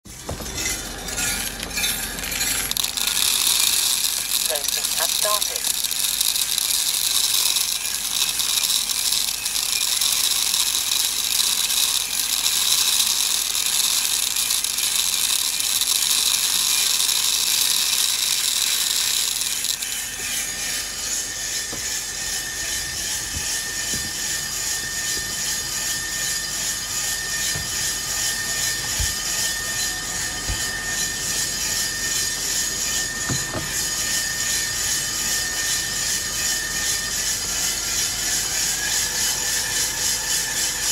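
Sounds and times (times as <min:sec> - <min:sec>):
coffee roaster drum tumbling beans: 0:00.1 - 0:40.9.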